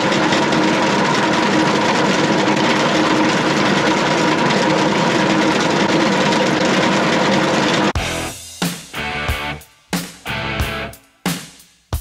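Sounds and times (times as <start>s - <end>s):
pump churning sludge: 0.0s - 8.0s
tractor engine running: 0.0s - 8.3s.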